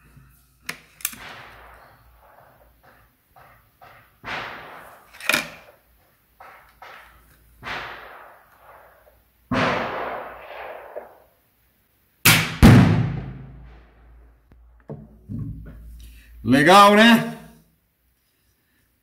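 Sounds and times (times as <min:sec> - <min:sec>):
air rifle shots: 0:01.1 - 0:11.4, 0:12.2 - 0:14.0
exploding target bang: 0:04.2 - 0:05.1, 0:06.8 - 0:11.3, 0:12.3 - 0:14.0.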